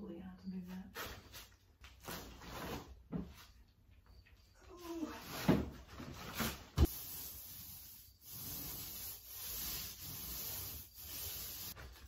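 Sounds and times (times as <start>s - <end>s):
paint roller rubbing on wall: 5.0s - 12.0s.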